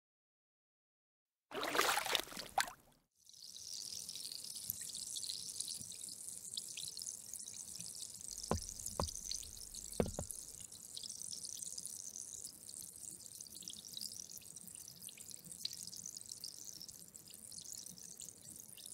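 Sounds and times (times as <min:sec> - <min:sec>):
bubbles fizzing in water: 0:01.5 - 0:02.8.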